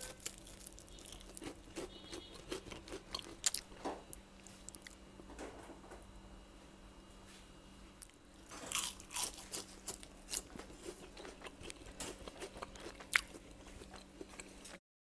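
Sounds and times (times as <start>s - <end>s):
crispy chips crunching: 0.0s - 3.8s, 8.5s - 14.8s.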